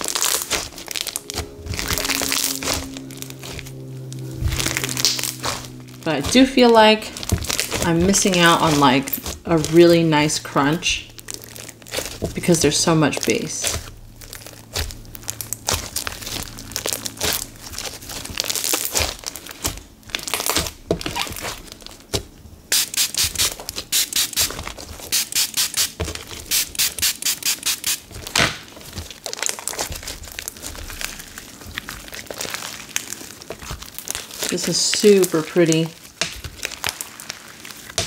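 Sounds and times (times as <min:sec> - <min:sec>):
slime clicking and popping: 0:04.6 - 0:05.8.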